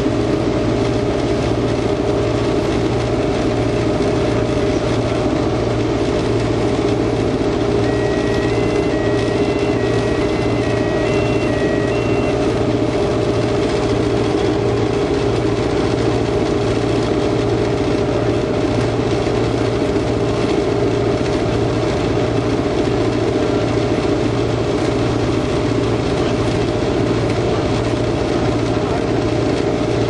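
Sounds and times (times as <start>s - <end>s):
locomotive engine drone: 0.0s - 30.0s
wheel and rail noise: 0.8s - 30.0s.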